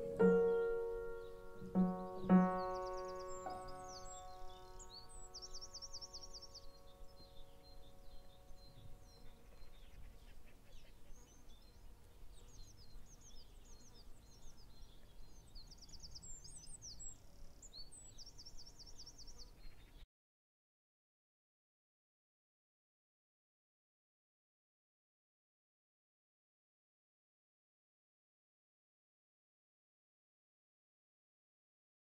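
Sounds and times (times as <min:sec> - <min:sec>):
piano notes: 0:00.0 - 0:05.6
faint birdsong: 0:00.0 - 0:20.1.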